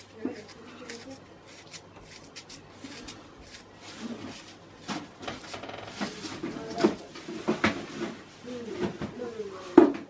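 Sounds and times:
knife cutting onion: 0:00.0 - 0:07.2.

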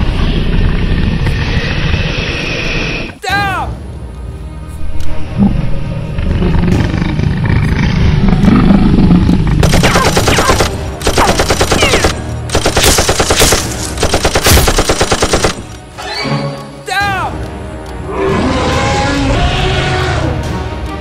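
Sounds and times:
low rumble: 0:04.0 - 0:09.8
machine-gun bursts: 0:09.6 - 0:15.8.

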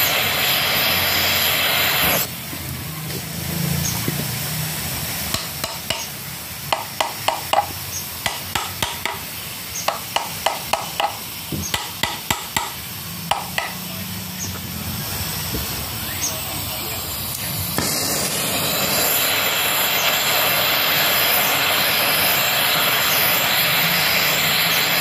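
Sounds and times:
hammer tapping on metal: 0:05.3 - 0:06.1, 0:06.7 - 0:09.3, 0:09.9 - 0:13.8.

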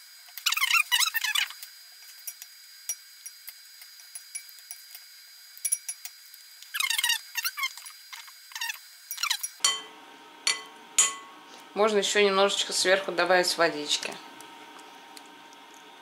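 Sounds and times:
squeaky scraping and wet mixing: 0:00.4 - 0:01.6, 0:06.7 - 0:09.5.

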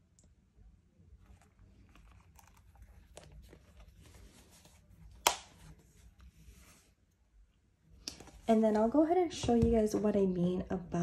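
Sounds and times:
wallet rustling and clicking: 0:01.2 - 0:06.4.

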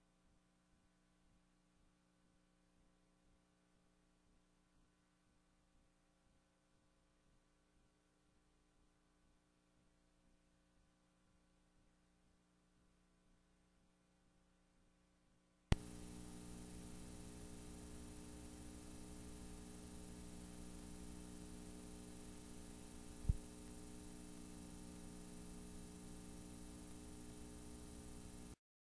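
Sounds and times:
mains hum: 0:00.0 - 0:28.6
low pop: 0:15.7 - 0:24.1
tape hiss: 0:15.7 - 0:28.6.

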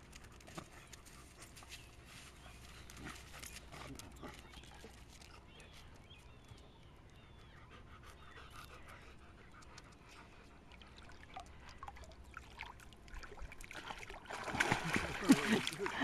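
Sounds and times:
dog panting: 0:07.1 - 0:11.8.

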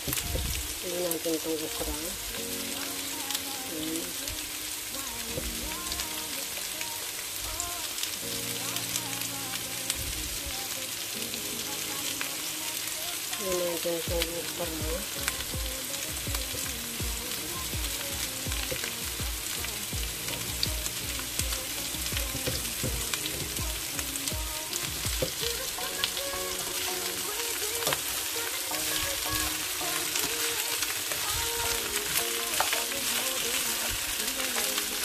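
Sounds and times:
vegetables sizzling in oil: 0:00.0 - 0:35.0
spatula stirring in pan: 0:24.7 - 0:35.0.

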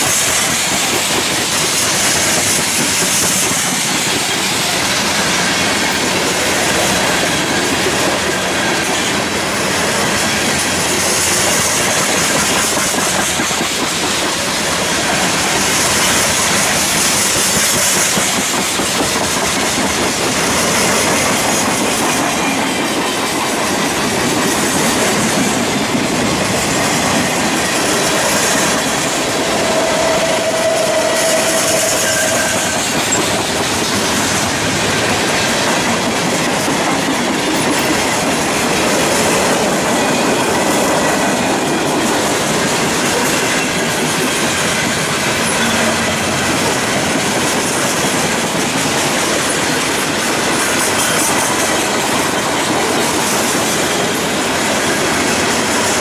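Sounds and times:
train wheels rumbling on rails: 0:00.0 - 0:56.0
wheel squeal: 0:28.3 - 0:33.4.

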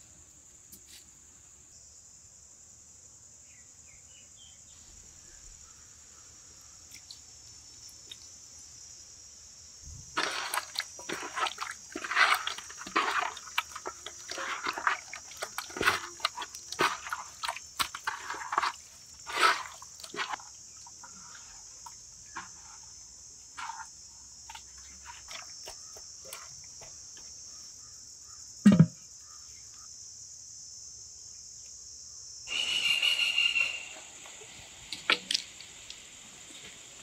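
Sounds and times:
crickets chirring: 0:00.0 - 0:37.0
wet squelches of fish in pot: 0:10.0 - 0:26.8
dull thump: 0:28.6 - 0:29.0.

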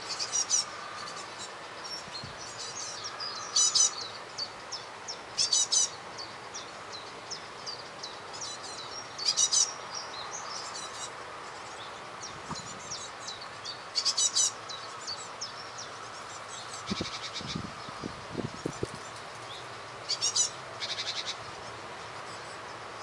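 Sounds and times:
small birds chirping: 0:00.0 - 0:23.0
fast rattling bird calls: 0:13.9 - 0:14.9, 0:16.1 - 0:21.8.

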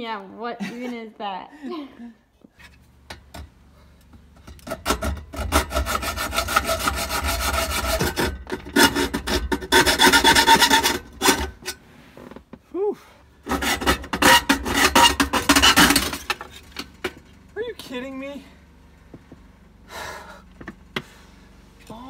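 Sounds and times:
reciprocating saw cutting metal: 0:04.7 - 0:11.6, 0:13.4 - 0:16.4.

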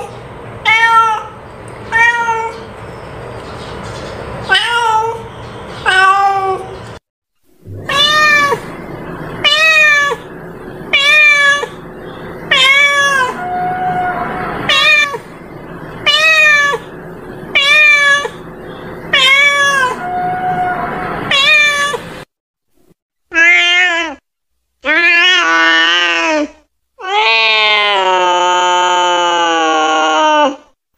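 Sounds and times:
cat meowing: 0:07.7 - 0:11.8, 0:12.5 - 0:15.3, 0:16.0 - 0:16.9, 0:17.5 - 0:18.4, 0:19.1 - 0:22.1.

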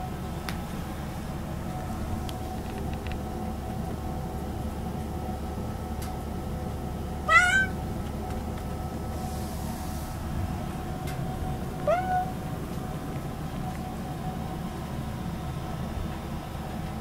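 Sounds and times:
cat meowing: 0:07.2 - 0:07.8, 0:11.8 - 0:12.4.

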